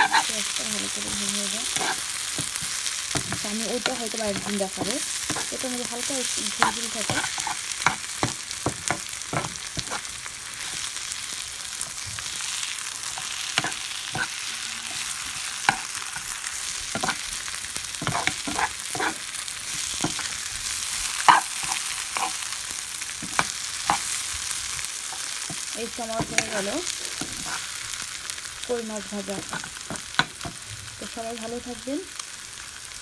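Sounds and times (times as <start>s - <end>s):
spatula scraping a pan: 0.0s - 5.6s, 6.2s - 11.0s, 13.0s - 22.6s, 23.2s - 28.0s
fish sizzling in hot oil: 0.0s - 33.0s.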